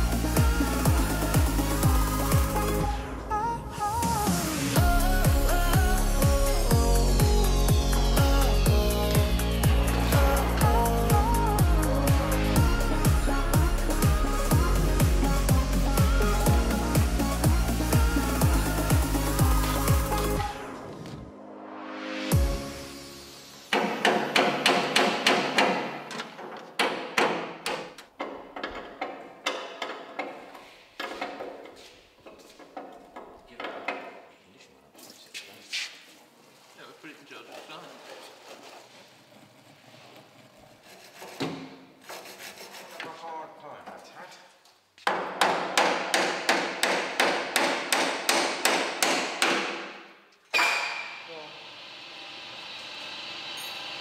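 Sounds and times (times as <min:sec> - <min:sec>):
hammer striking metal: 0:23.7 - 0:28.4, 0:45.1 - 0:51.3.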